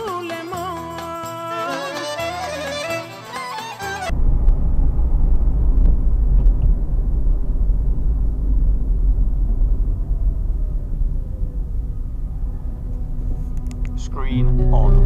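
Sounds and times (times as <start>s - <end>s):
car engine and tyre rumble: 4.1s - 15.0s
faint falling tone: 4.1s - 15.0s.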